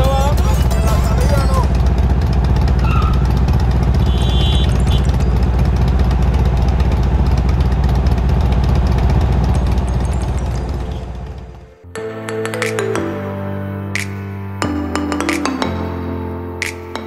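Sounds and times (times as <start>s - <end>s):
motorcycle engine idling: 0.0s - 11.8s.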